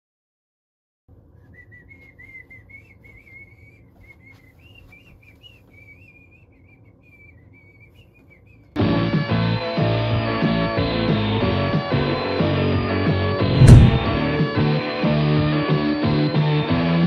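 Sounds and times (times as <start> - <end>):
person whistling a tune: 1.4 - 8.7
low room rumble: 13.4 - 14.5.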